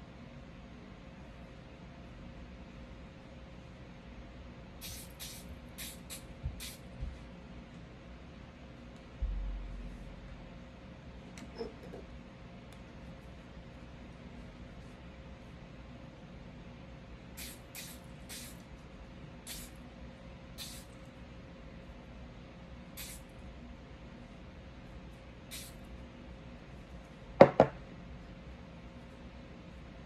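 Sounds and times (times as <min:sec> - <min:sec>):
aerosol spray can hissing: 0:04.8 - 0:06.8, 0:17.4 - 0:18.6, 0:19.5 - 0:19.8, 0:20.6 - 0:20.9, 0:23.0 - 0:23.3, 0:25.5 - 0:25.8.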